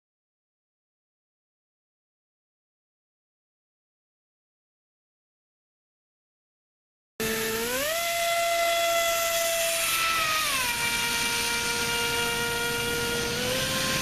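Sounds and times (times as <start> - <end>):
electric motor high whine: 7.2 - 14.0
propeller rush of air: 9.0 - 14.0.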